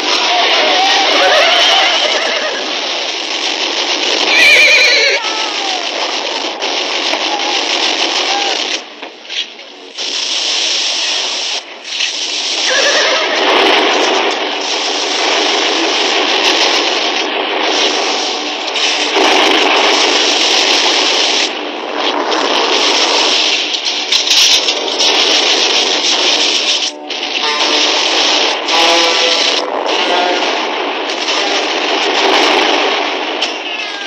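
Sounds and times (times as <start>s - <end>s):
battle noise with horses: 0.0s - 9.2s
horse whinny: 4.3s - 5.4s.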